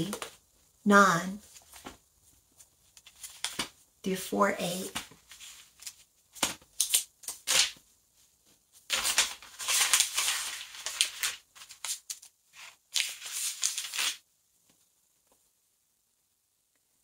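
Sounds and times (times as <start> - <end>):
pages turning and rustling: 0.0 - 0.4, 1.4 - 3.8, 4.8 - 15.4.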